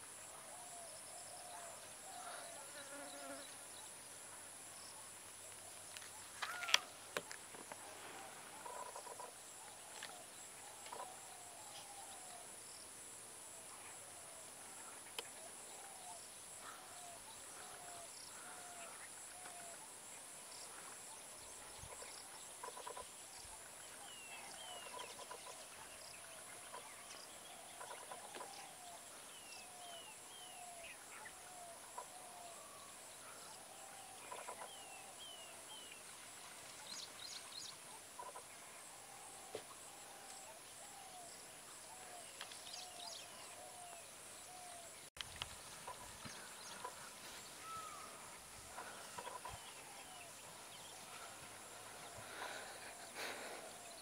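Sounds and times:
birds calling: 41.9 - 54.0.

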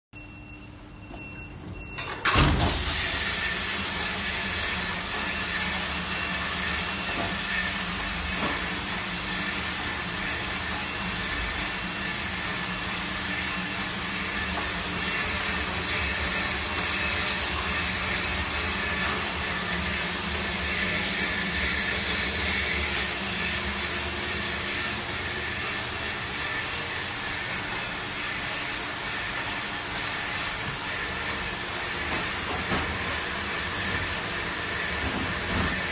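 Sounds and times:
dishwasher pump starting: 1.1 - 35.9
water spraying inside dishwasher: 2.3 - 35.9.

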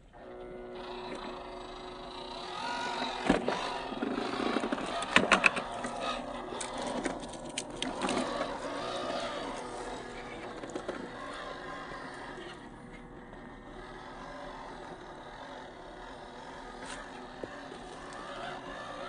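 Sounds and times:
electric motor and gears whirring: 0.0 - 19.0
tyres grinding and knocking on rock: 2.8 - 12.4.

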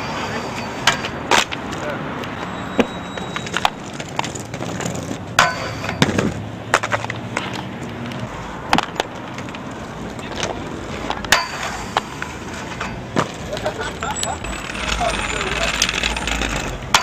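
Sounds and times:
skate wheels rolling on pavement: 0.0 - 17.0
skates clacking on obstacles: 0.8 - 17.0.

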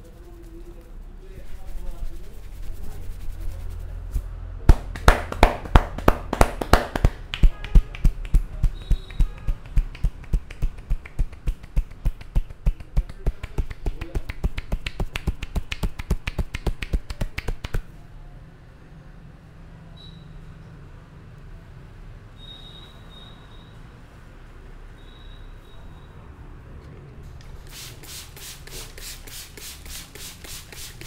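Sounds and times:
hair cracking between fingers: 4.8 - 17.9.

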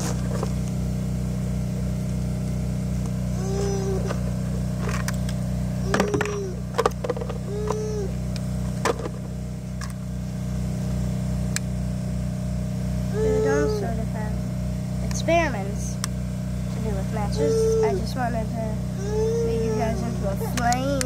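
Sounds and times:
low pulsing motor hum: 0.0 - 21.0.

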